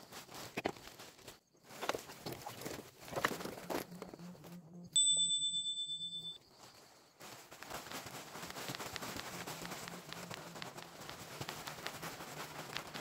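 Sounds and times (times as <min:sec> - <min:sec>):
high metallic ding: 0:05.0 - 0:06.5.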